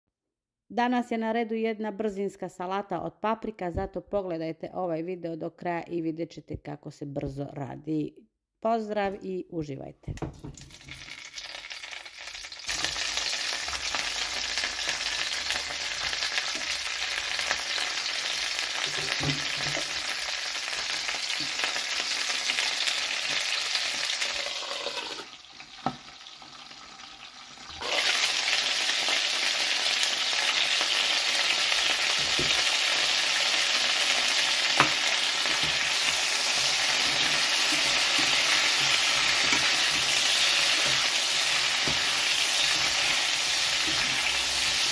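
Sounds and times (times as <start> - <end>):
peppers sizzling in oil: 10.4 - 44.9
spatula stirring in a pan: 34.7 - 44.9.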